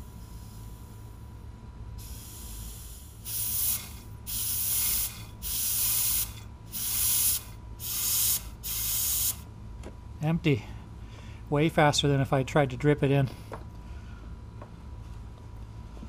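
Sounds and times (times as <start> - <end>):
compressed air hissing: 0.0 - 1.2, 2.0 - 9.4.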